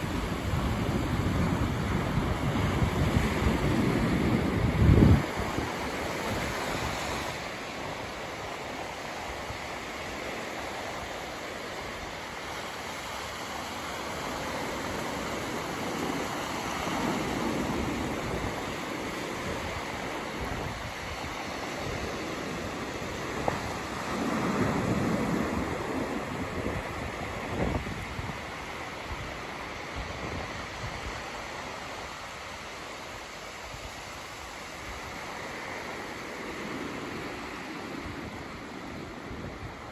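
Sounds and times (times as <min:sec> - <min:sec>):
small waves breaking on beach: 0:00.0 - 0:39.9.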